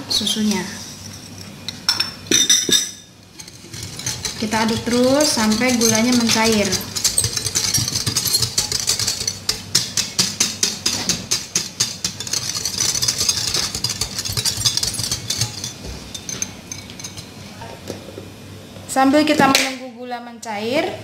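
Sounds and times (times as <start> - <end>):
whisk beating in glass bowl: 3.3 - 17.4.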